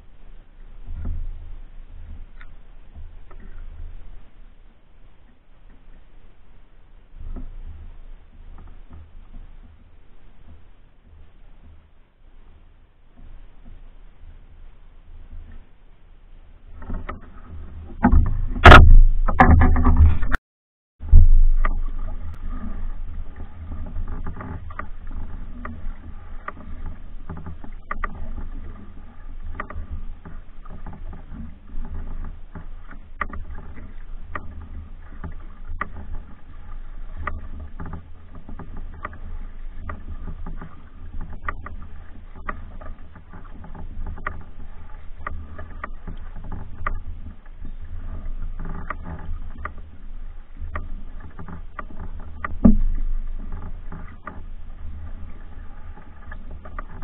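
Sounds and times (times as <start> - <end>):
paddle pulling through water: 0.0 - 20.4, 21.0 - 57.0
light splashes and knocks: 0.9 - 6.0, 16.7 - 20.4, 21.0 - 57.0
low rumble: 16.3 - 20.4, 21.0 - 30.8.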